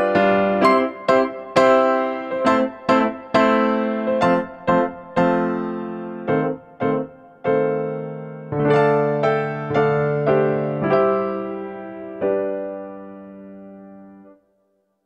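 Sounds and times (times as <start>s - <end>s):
slow electric piano tune: 0.0s - 14.4s.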